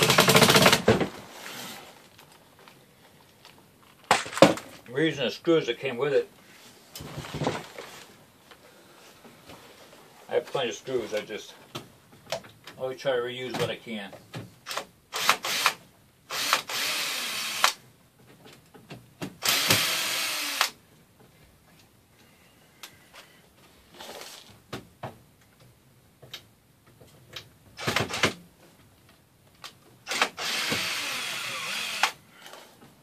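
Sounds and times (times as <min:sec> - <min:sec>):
cordless drill driving screws: 0:14.7 - 0:17.8, 0:19.4 - 0:20.8, 0:30.1 - 0:32.2.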